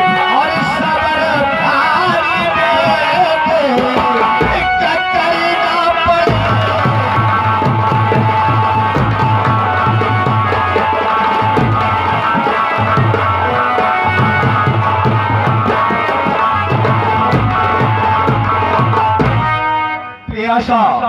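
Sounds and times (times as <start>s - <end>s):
electronic keyboard melody: 0.0s - 20.4s
hand drum beat: 2.0s - 4.9s, 6.0s - 19.6s.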